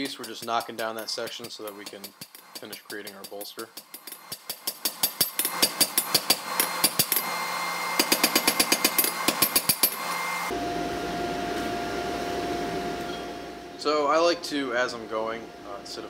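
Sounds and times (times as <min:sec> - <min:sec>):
power hammer pounding steel: 0:00.0 - 0:07.3, 0:07.9 - 0:10.0
machine hum with thin whine: 0:10.4 - 0:16.0.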